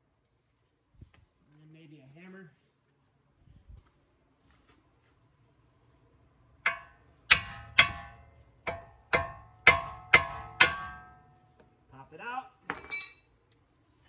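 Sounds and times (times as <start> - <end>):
hammer striking steel: 6.6 - 11.4.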